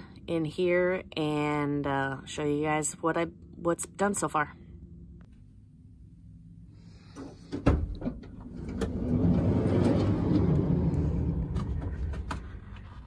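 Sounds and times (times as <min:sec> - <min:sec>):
sliding door rumbling open: 0:07.2 - 0:13.0.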